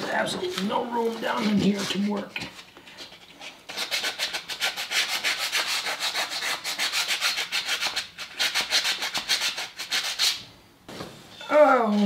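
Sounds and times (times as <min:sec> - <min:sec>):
sandpaper rubbing on metal: 0:03.4 - 0:10.4.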